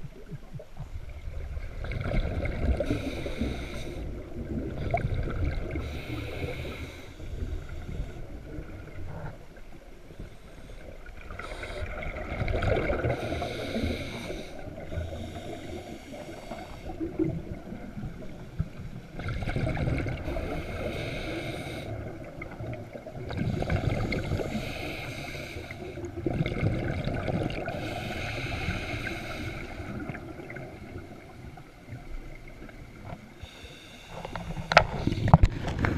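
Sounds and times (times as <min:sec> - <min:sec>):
muffled underwater water noise: 0:00.0 - 0:35.9.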